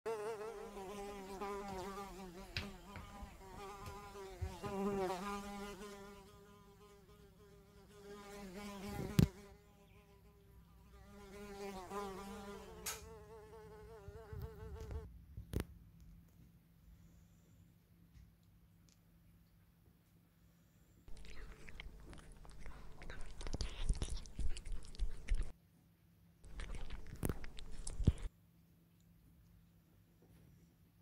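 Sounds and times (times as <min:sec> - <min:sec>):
fly buzzing: 0:00.1 - 0:10.3, 0:10.9 - 0:15.1.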